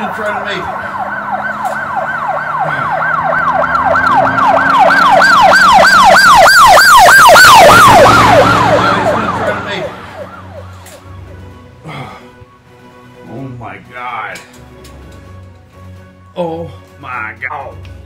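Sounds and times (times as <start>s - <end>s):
emergency siren yelping: 0.0s - 13.2s.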